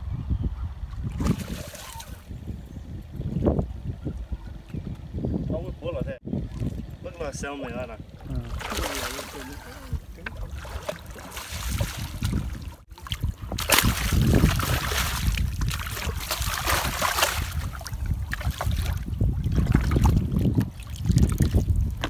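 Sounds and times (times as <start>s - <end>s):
wind buffeting microphone: 0.0s - 22.0s
fish splashing in shallow water: 1.0s - 2.3s, 8.1s - 22.0s.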